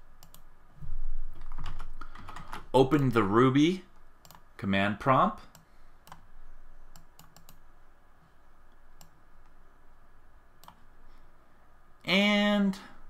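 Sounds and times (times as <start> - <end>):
computer mouse and key clicks: 0.1 - 0.5, 1.4 - 3.0, 4.0 - 4.5, 5.5 - 6.3, 6.9 - 7.6, 8.7 - 9.6, 10.6 - 10.9.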